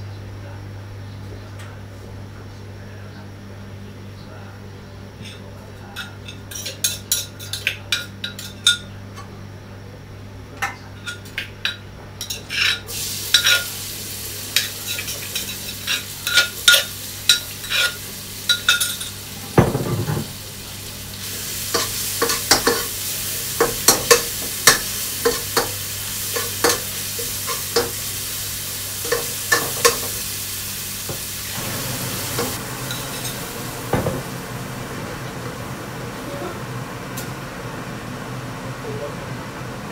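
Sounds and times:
paste sizzling in oil: 12.9 - 19.5, 20.3 - 34.8.

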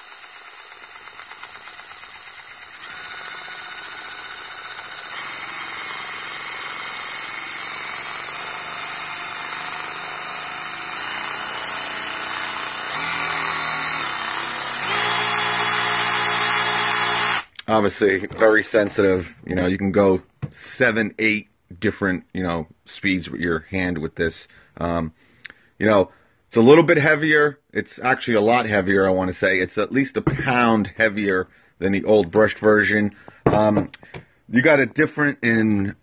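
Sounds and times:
cordless ratchet motor whine: 0.0 - 17.6.

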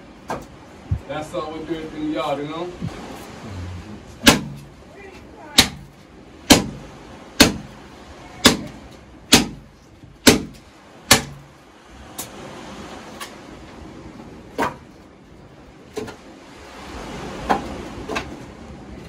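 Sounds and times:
machete chopping firewood: 4.2 - 4.6, 5.6 - 5.9, 6.5 - 6.8, 7.4 - 7.7, 9.3 - 9.6, 10.2 - 11.4.

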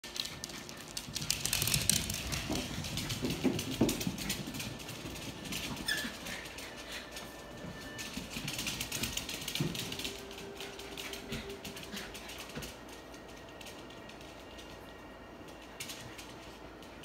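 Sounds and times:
dog claws pattering on hard floor: 0.2 - 6.7.

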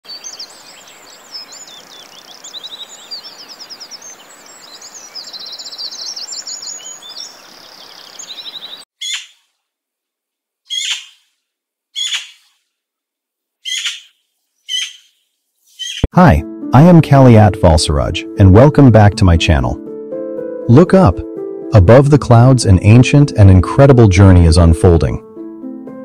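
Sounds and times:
songbirds singing: 0.0 - 9.4, 10.7 - 11.2, 12.0 - 12.6, 13.6 - 16.1
short falling bird call: 10.7 - 11.2, 12.0 - 12.5, 13.6 - 15.2.

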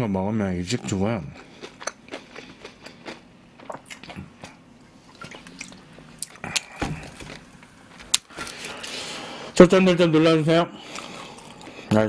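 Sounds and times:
chewing: 0.8 - 7.4.

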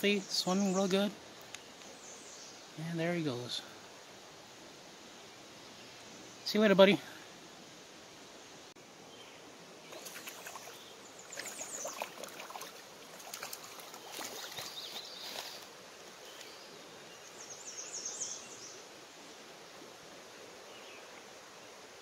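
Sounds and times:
creek water running over rocks: 0.0 - 22.0
light splashing: 9.9 - 15.7.

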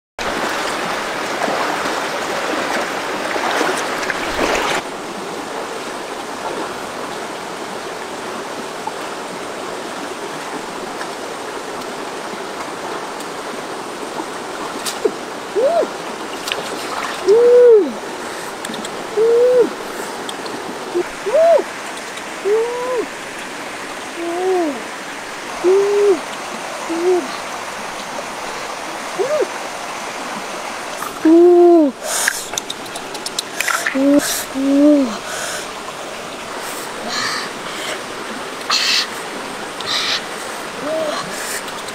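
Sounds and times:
stream running over rocks: 0.2 - 41.9
hooting calls: 25.6 - 26.3.

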